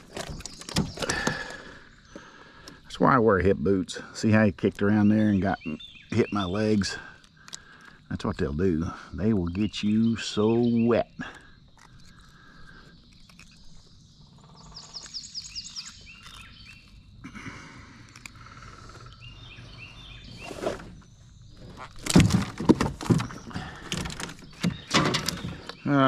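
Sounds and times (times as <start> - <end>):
songbirds calling: 0.0 - 26.0
high bird chirps: 8.7 - 17.1.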